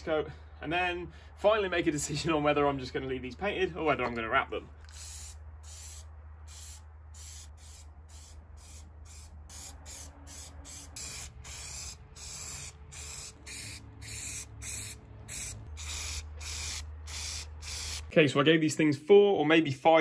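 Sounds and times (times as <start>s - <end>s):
aerosol can spraying: 4.9s - 18.1s.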